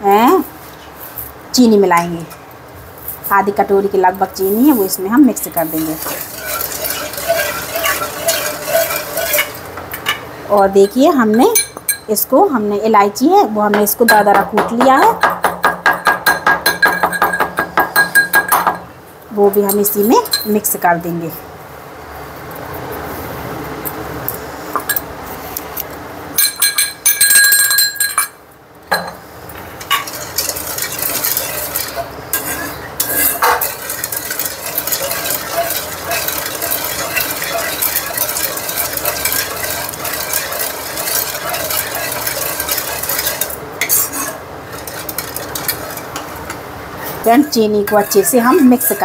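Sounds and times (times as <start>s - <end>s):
ladle stirring thick milk: 4.8s - 9.8s, 29.8s - 49.0s.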